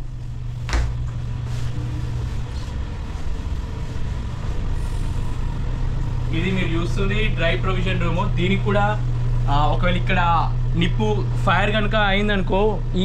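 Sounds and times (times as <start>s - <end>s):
low hum of ship machinery: 0.0s - 13.0s
footsteps on steel stairs: 0.6s - 1.2s.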